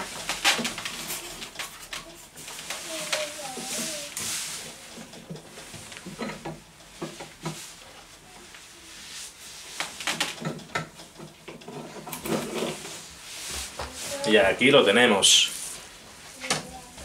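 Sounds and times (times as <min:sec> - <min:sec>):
hands rustling: 0:02.2 - 0:04.9.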